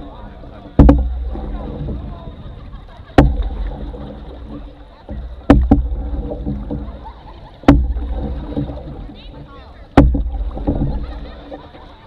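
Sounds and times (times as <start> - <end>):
paddle knocking on canoe hull: 0.4 - 12.0.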